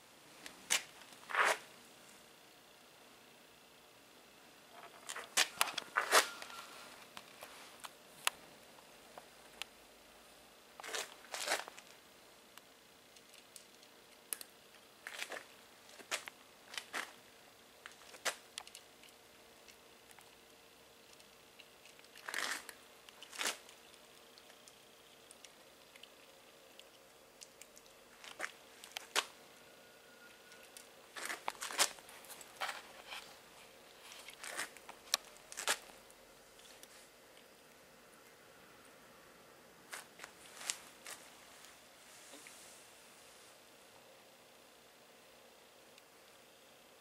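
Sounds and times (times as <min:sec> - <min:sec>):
cat crunching kibble in metal bowl: 0:21.0 - 0:29.4, 0:31.1 - 0:33.3.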